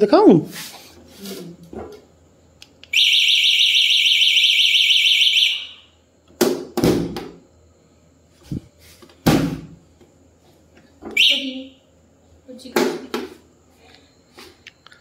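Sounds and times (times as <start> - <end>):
scooter alarm pulsing tone: 2.9 - 6.0, 11.2 - 11.7.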